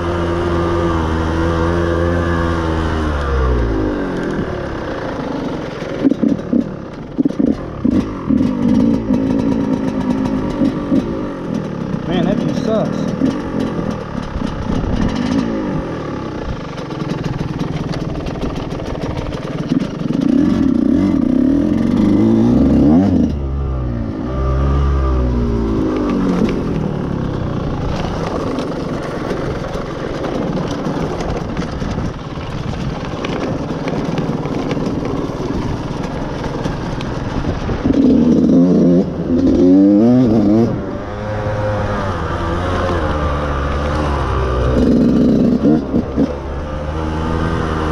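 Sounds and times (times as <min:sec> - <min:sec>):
dirt bike engine revving: 0:00.0 - 0:31.3, 0:34.0 - 0:47.9
person talking: 0:12.1 - 0:13.2.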